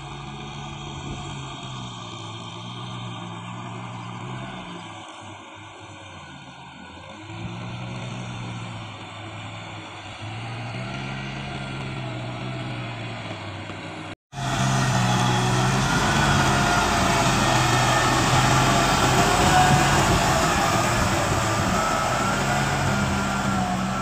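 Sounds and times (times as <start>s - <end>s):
tractor diesel engine running: 7.5s - 24.0s.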